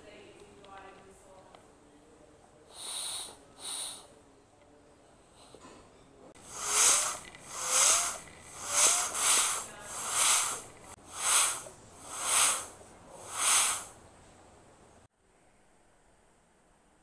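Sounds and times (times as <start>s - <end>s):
bicycle pump air hiss: 2.7s - 4.1s, 5.2s - 5.6s, 6.4s - 14.0s.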